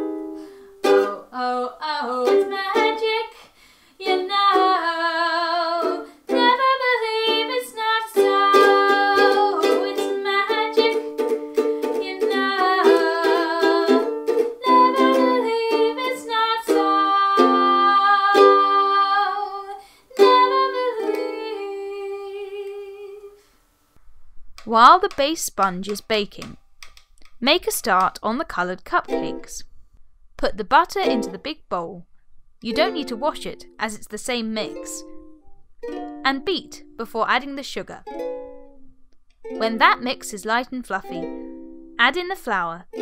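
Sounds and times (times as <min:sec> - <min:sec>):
strummed ukulele: 0:00.0 - 0:03.3, 0:04.0 - 0:21.9, 0:29.0 - 0:29.7, 0:30.9 - 0:31.5, 0:32.6 - 0:33.8, 0:34.5 - 0:37.0, 0:38.0 - 0:40.4, 0:41.0 - 0:42.1
woman singing with vibrato: 0:00.9 - 0:11.1, 0:11.9 - 0:23.4, 0:32.7 - 0:35.1.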